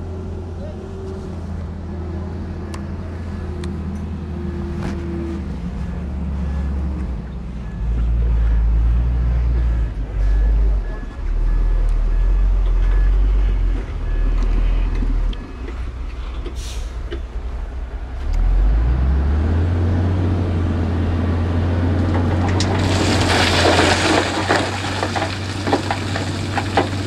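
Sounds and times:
heavy diesel engine running: 0:00.0 - 0:27.0
rock crunching and clattering: 0:22.0 - 0:27.0.

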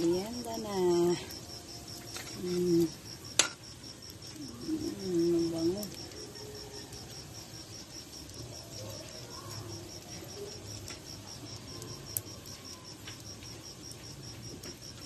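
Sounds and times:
cricket chirping: 0:00.0 - 0:15.0
food deep-frying in oil: 0:00.0 - 0:15.0
sharp pop of hot oil: 0:03.3 - 0:03.7.

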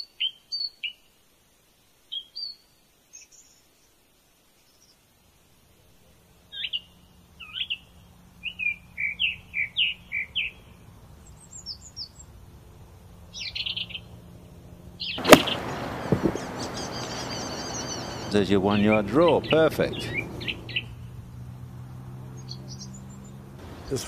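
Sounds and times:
small birds chirping: 0:00.0 - 0:01.3, 0:02.0 - 0:05.2, 0:05.9 - 0:14.2, 0:14.9 - 0:24.0
golf club striking ball: 0:15.2 - 0:18.3
steady rushing noise: 0:15.2 - 0:18.5, 0:23.6 - 0:24.0.

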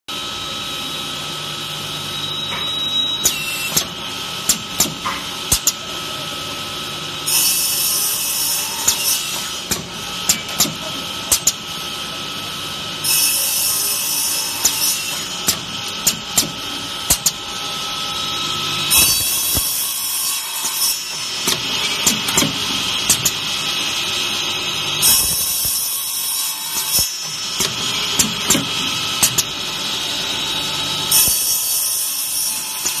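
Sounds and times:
saw blade cutting copper tube: 0:02.2 - 0:06.3, 0:07.2 - 0:12.2, 0:13.0 - 0:33.0
sharp mechanical clacks: 0:08.9 - 0:11.6, 0:20.6 - 0:23.4, 0:26.8 - 0:29.5.

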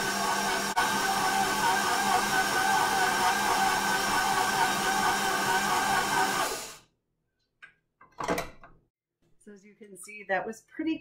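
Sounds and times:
stand mixer motor whining: 0:00.0 - 0:06.8.

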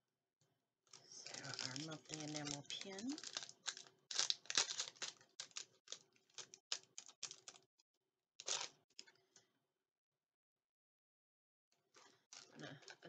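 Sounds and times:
packaging crinkling and crackling: 0:00.9 - 0:07.6, 0:08.4 - 0:09.1, 0:12.0 - 0:13.0.

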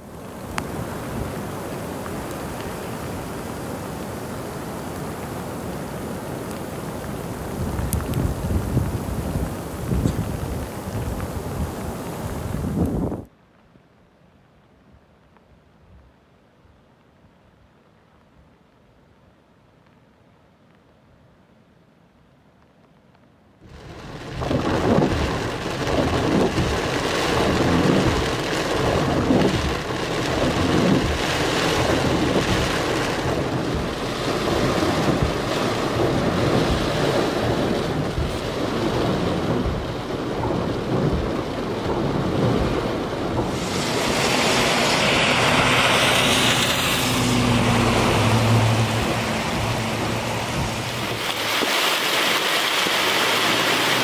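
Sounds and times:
heavy rain: 0:00.0 - 0:21.6, 0:22.4 - 0:54.0
wind buffeting microphone: 0:00.2 - 0:13.3, 0:23.6 - 0:54.0
surf: 0:23.6 - 0:54.0.

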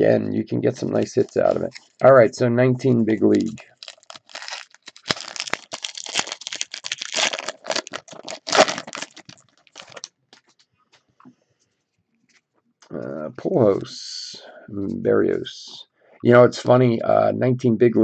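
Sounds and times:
cards rustling: 0:00.8 - 0:02.0, 0:03.3 - 0:10.7
wrapper crinkling and tearing: 0:03.3 - 0:10.6.

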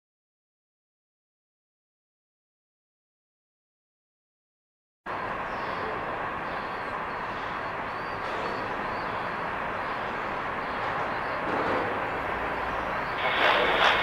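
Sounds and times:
train wheels rolling on rails: 0:05.1 - 0:14.0.

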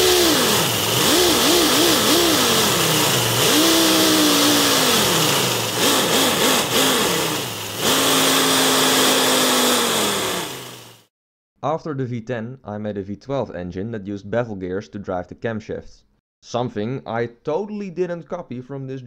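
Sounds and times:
compressed-air engine revving: 0:00.0 - 0:11.1.

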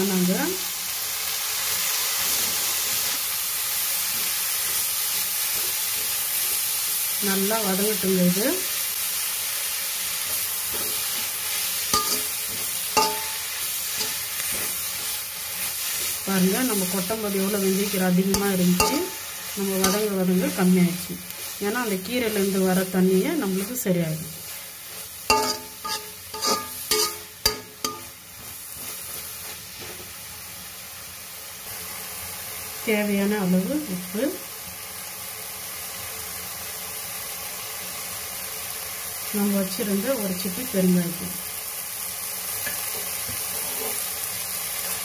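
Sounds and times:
leaves sizzling in hot oil: 0:00.0 - 0:45.0
metal spatula stirring: 0:10.2 - 0:30.1, 0:42.6 - 0:44.0
spatula clanging on pan: 0:10.3 - 0:11.3, 0:11.9 - 0:14.8, 0:18.3 - 0:19.2, 0:19.8 - 0:20.2, 0:25.3 - 0:28.6.

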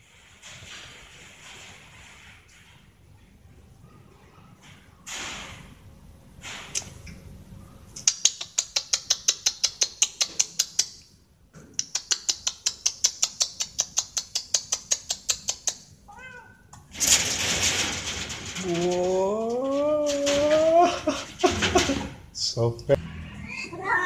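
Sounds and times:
cats scrambling on metal grille: 0:00.0 - 0:07.4, 0:12.2 - 0:22.3
rapid even clicking: 0:08.0 - 0:11.0, 0:11.8 - 0:15.8
cat meow: 0:16.1 - 0:16.6, 0:23.4 - 0:24.0.

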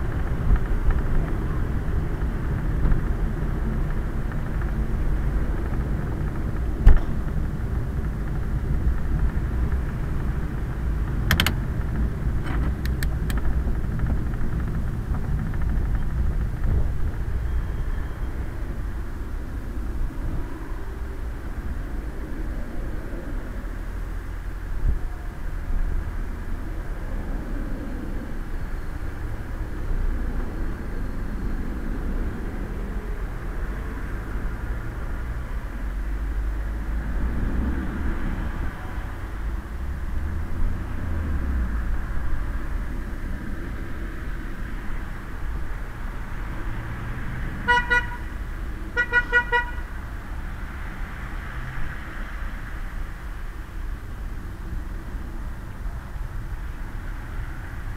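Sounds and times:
velomobile rumble and hiss: 0:00.0 - 0:57.9
vehicle horn toots: 0:47.6 - 0:48.3, 0:48.9 - 0:50.0.

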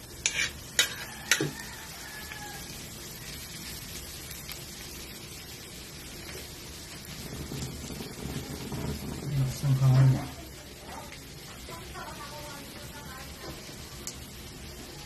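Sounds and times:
garlic sizzling in oil: 0:00.0 - 0:15.0
metal spoon tapping wok: 0:00.2 - 0:01.7.

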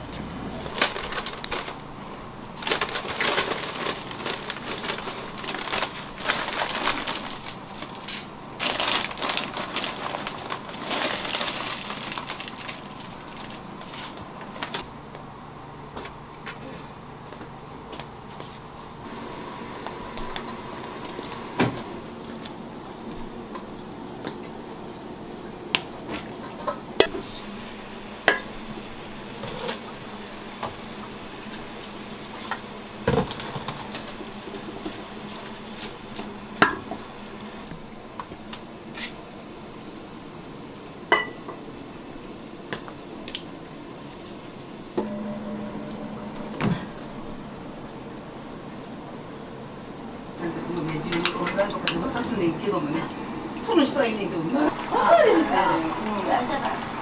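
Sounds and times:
steady low hum: 0:00.0 - 0:55.0
dishes and pots clinking: 0:41.1 - 0:41.6.

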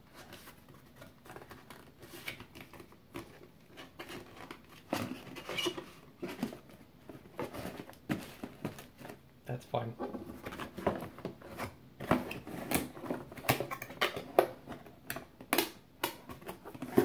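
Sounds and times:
cardboard and plastic crinkling: 0:00.0 - 0:09.3.

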